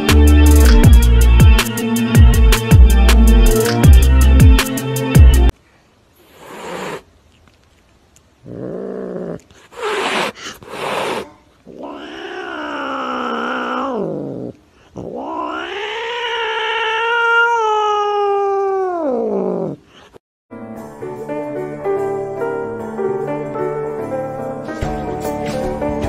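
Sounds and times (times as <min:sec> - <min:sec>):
cat yowling: 0:08.5 - 0:19.8.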